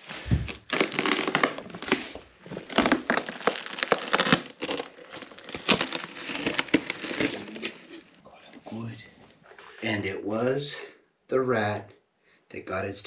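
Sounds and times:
duct tape crinkling and tearing: 0:00.0 - 0:08.2
styrofoam crunching and scraping: 0:00.0 - 0:08.2.

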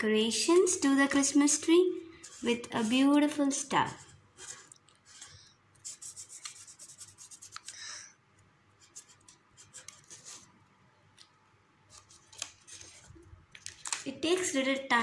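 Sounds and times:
pen scratching on paper: 0:02.2 - 0:07.7, 0:08.8 - 0:10.5
paper rustling: 0:11.9 - 0:14.7.

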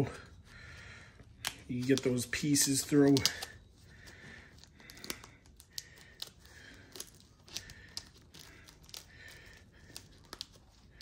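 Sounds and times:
velcro scratching and clicking: 0:01.4 - 0:11.0.

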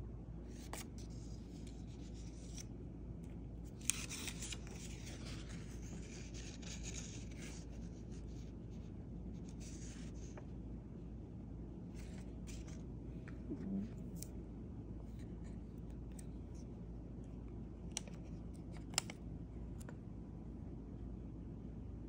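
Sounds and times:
steady low hum: 0:00.0 - 0:22.0
paper rustling: 0:03.7 - 0:08.5.

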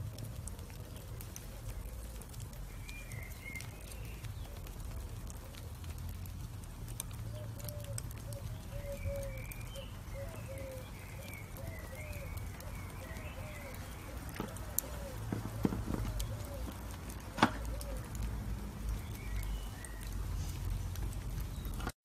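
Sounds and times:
charcoal embers crackling: 0:00.0 - 0:22.0.

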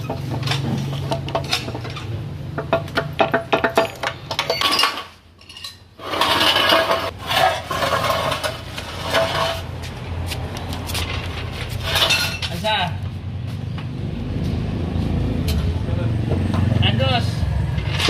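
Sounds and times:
metal parts clinking: 0:03.6 - 0:07.1.

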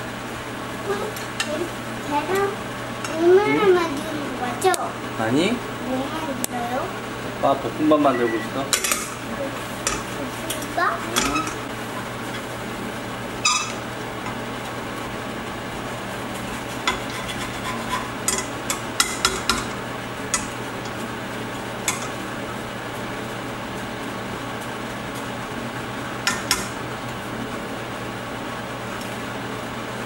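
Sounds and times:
steady low hum: 0:00.0 - 0:30.0
spatula scraping frying pan: 0:16.6 - 0:18.5.

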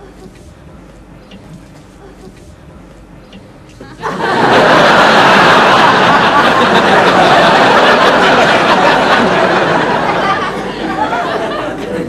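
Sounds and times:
crowd laughing and chattering: 0:03.8 - 0:12.0.

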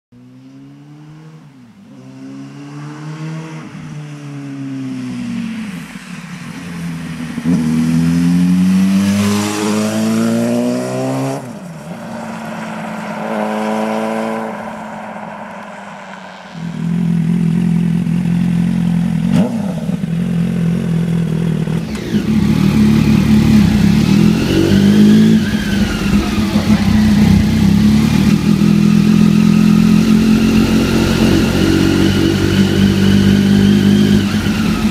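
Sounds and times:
motorcycle accelerating through gears: 0:00.2 - 0:34.9
motorcycle engine revving loudly: 0:16.6 - 0:34.9.

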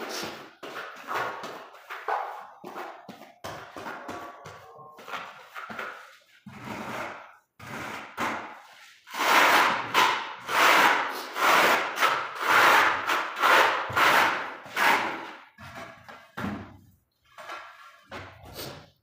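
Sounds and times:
trowel scraping tile adhesive: 0:00.0 - 0:18.9.

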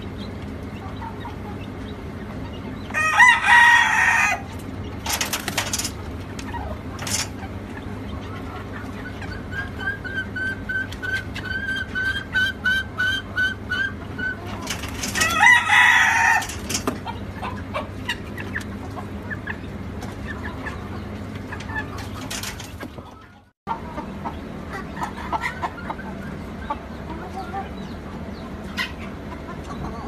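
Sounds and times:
chickens clucking: 0:00.0 - 0:30.0
chicks peeping: 0:00.0 - 0:30.0
loud chicken call: 0:02.9 - 0:04.5, 0:15.2 - 0:16.6
scratching: 0:05.0 - 0:07.5, 0:14.3 - 0:17.2, 0:21.4 - 0:23.2.

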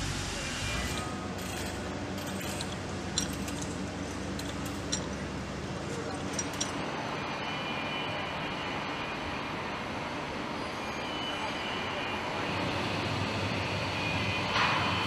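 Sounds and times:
low industrial hum: 0:00.0 - 0:10.8
sharp metallic clinks: 0:01.4 - 0:05.3.

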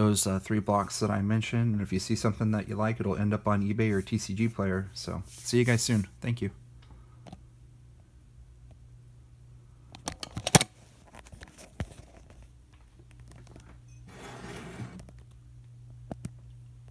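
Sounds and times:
low steady hum: 0:00.0 - 0:16.9.

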